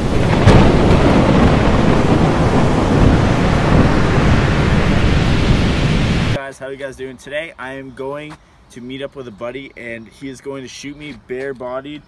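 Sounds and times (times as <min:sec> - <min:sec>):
rain: 0:00.0 - 0:06.4
thunderclap: 0:00.0 - 0:06.4
wind: 0:00.0 - 0:12.0.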